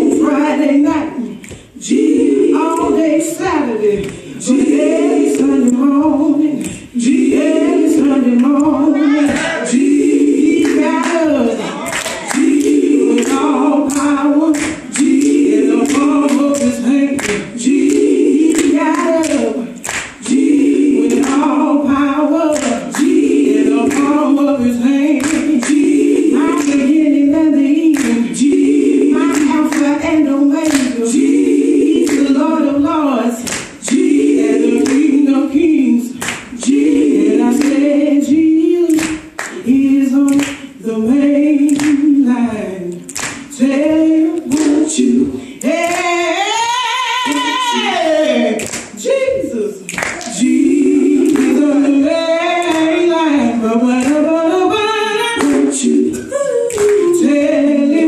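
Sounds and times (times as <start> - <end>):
women singing a cappella: 0.0 - 58.0
hands clapping: 1.4 - 1.7, 2.7 - 3.0, 4.0 - 4.2, 5.3 - 6.9, 8.4 - 9.5, 10.6 - 11.2, 11.8 - 20.4, 21.0 - 21.5, 22.5 - 23.2, 23.8 - 24.2, 25.2 - 25.9, 26.6 - 27.0, 27.8 - 28.3, 29.2 - 30.0, 30.6 - 31.0, 31.9 - 32.3, 33.4 - 35.2, 36.2 - 36.8, 37.6 - 37.9, 38.9 - 40.6, 41.6 - 42.1, 42.9 - 44.8, 45.6 - 46.1, 48.6 - 49.0, 49.9 - 51.9, 52.6 - 53.0, 54.0 - 54.2, 55.4 - 57.1.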